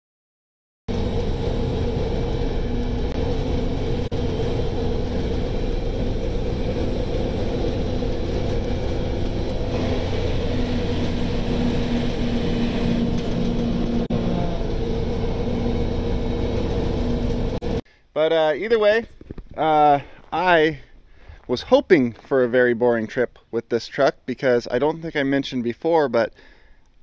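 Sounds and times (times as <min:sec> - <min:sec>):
truck engine drone in cab: 0:00.9 - 0:17.8.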